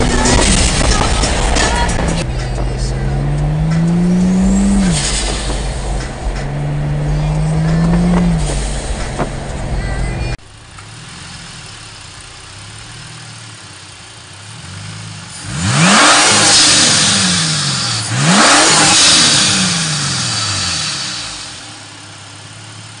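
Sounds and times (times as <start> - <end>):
turbo air rushing: 0.0 - 13.1
car driving on freeway: 0.0 - 23.0
car engine idling and revving: 0.0 - 23.0.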